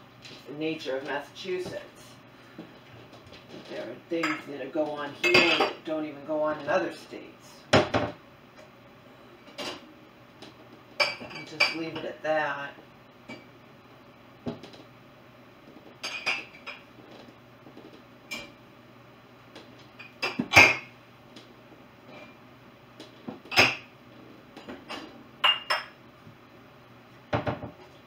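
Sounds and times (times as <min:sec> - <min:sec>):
dishes clinking and knocking: 0:05.2 - 0:05.8, 0:11.0 - 0:12.1, 0:16.0 - 0:16.9, 0:20.0 - 0:20.9, 0:23.3 - 0:23.9, 0:24.6 - 0:26.0, 0:27.3 - 0:27.8.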